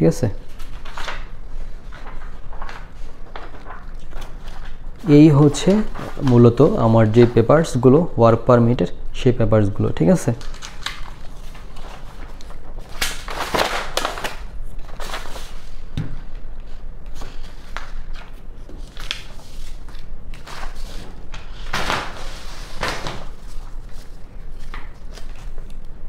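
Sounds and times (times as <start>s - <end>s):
paper rustling: 0.4s - 7.6s, 10.2s - 15.9s, 16.6s - 25.9s.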